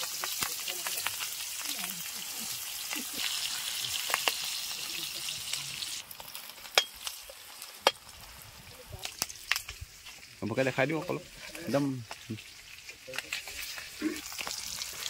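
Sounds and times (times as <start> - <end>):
chicken sizzling in a wok: 0.0 - 15.0.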